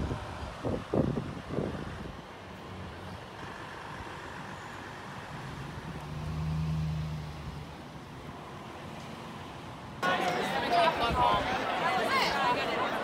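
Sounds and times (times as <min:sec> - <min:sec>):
outdoor background noise: 0:00.0 - 0:13.0.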